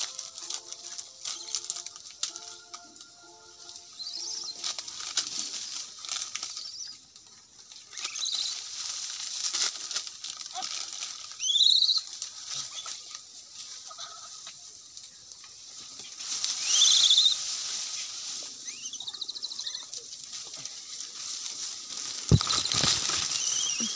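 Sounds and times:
steady high hiss: 11.2 - 23.9.

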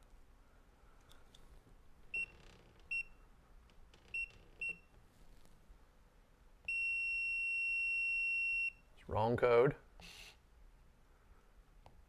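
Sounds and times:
long steady lock beep: 2.1 - 3.2, 4.1 - 4.9, 6.7 - 8.9.

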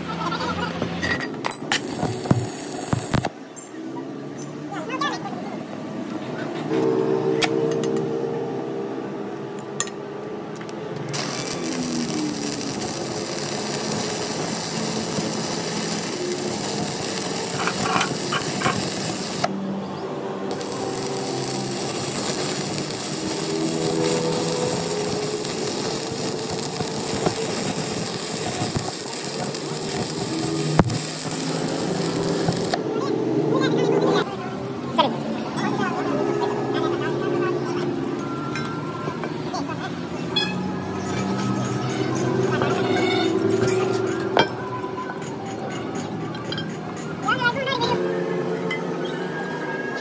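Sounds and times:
clicks and scraping: 1.0 - 3.4
power tool hissing: 1.8 - 3.3, 11.1 - 19.6, 20.5 - 32.8.

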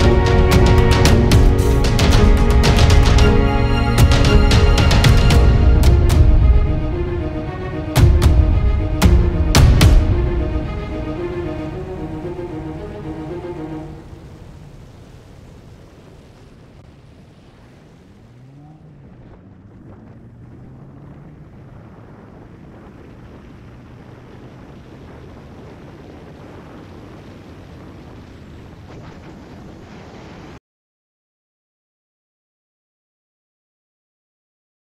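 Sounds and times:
car engine: 0.0 - 25.3
tyre noise on wet road: 13.4 - 30.6
wind on microphone: 14.0 - 30.6.

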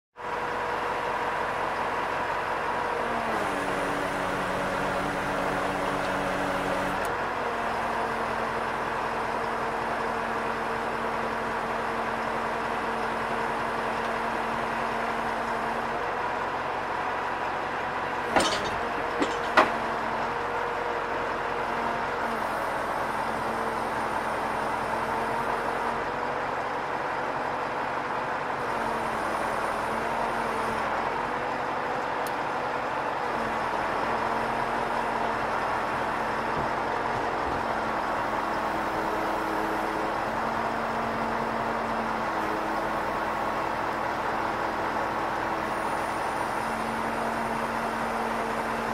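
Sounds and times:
truck engine idling: 3.7 - 28.5
sharp metal clanks: 18.3 - 19.8.

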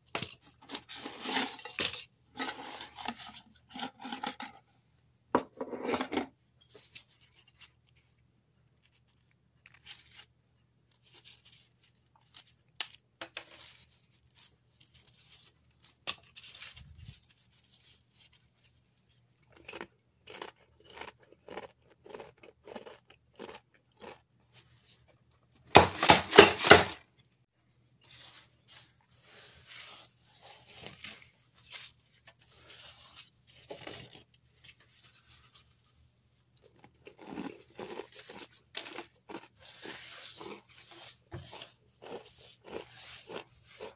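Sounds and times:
potato chips crackling and snapping: 10.9 - 15.0, 19.5 - 24.2.

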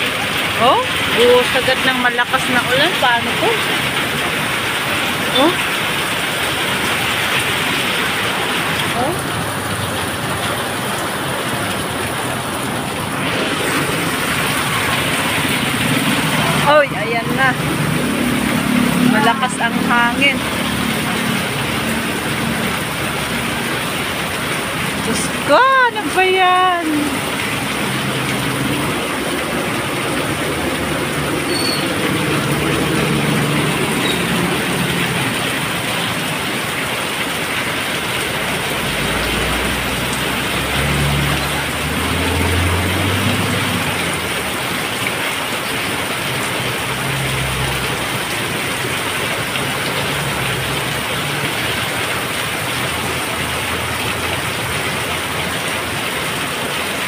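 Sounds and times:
truck engine rumbling: 0.0 - 45.0
heavy rain hiss: 0.0 - 57.0.

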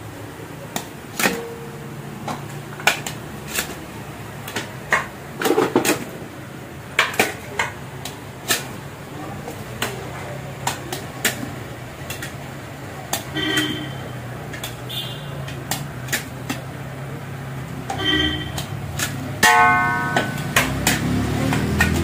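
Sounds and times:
loud ringing metal clang: 19.4 - 20.7.

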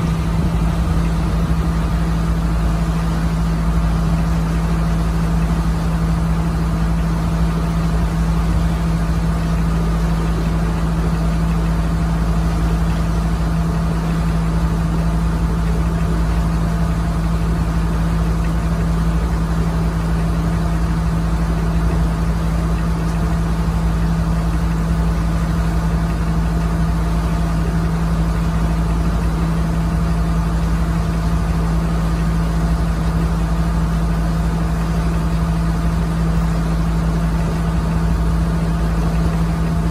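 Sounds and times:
boat engine drone: 0.0 - 39.9.

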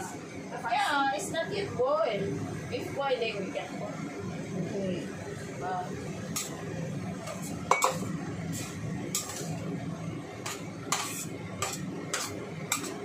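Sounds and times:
metal spatula scraping a wok: 6.3 - 6.6, 7.2 - 9.7, 10.4 - 13.0.

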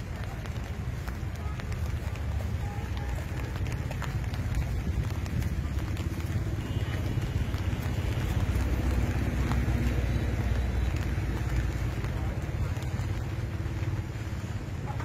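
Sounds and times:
wind buffeting microphone: 3.0 - 9.7.

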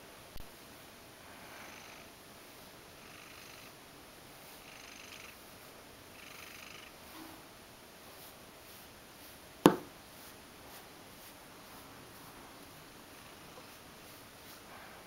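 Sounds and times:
cat purring softly: 1.2 - 2.2, 2.9 - 3.8, 4.4 - 7.5, 11.7 - 15.0
brush drawn through fur: 7.0 - 15.0
sharp tap: 9.7 - 9.9.

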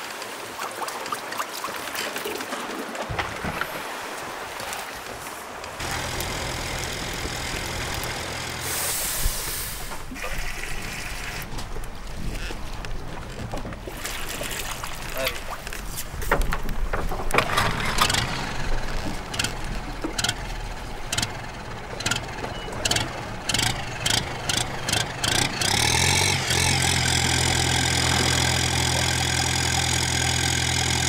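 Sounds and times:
diesel boat engine starting and idling: 5.8 - 11.5, 17.2 - 31.0
clicks and knocks: 16.2 - 20.4.

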